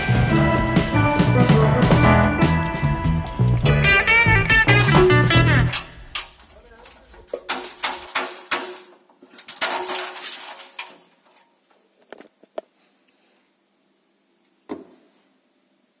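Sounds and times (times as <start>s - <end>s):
toothpicks clattering on metal drum: 3.5s - 8.7s.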